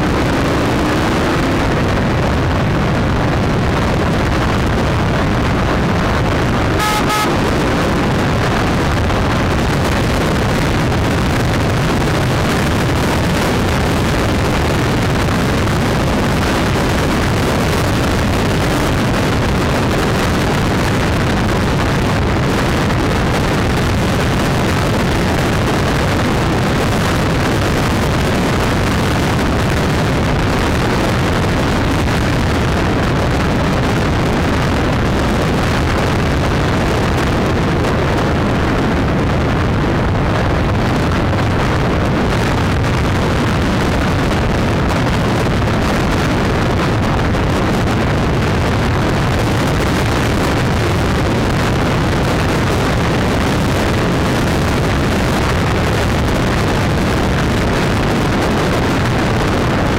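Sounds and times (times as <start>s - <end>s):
road noise: 0.0s - 59.9s
wind buffeting the microphone: 0.0s - 59.9s.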